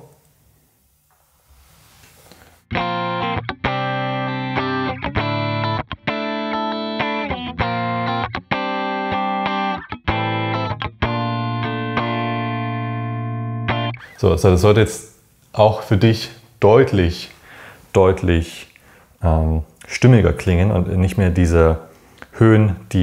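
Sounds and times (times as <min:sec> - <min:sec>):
electric guitar clean chords: 0:02.7 - 0:14.2.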